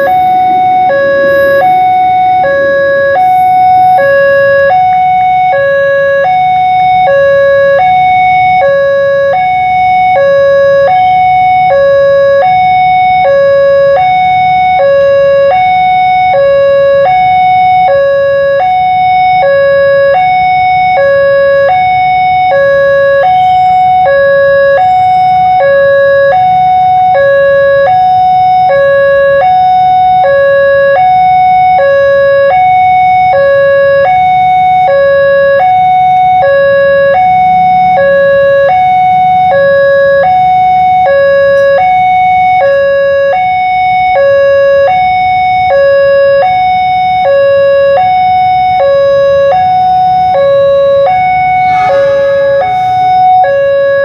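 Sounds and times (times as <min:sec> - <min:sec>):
hi-lo electronic warning alarm: 0:00.0 - 0:54.0
low steady rumble: 0:49.0 - 0:54.0.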